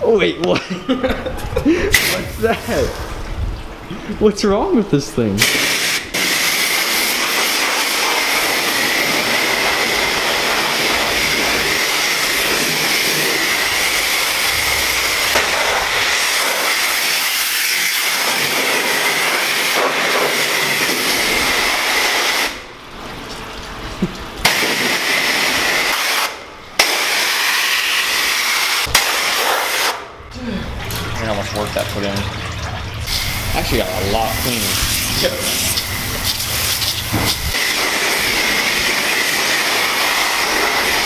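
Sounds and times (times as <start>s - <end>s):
high-pressure water spray hissing: 1.9s - 3.1s, 5.4s - 22.7s, 24.4s - 30.1s, 33.1s - 41.0s.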